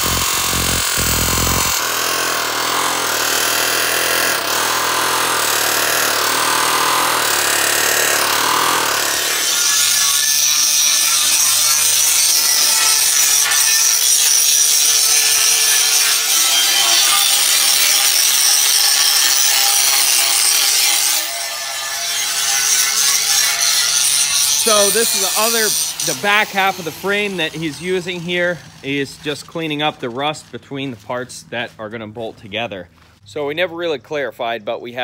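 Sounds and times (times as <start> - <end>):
pneumatic air hammer buzzing: 0.0 - 11.4
angle grinder grinding steel: 0.0 - 29.9.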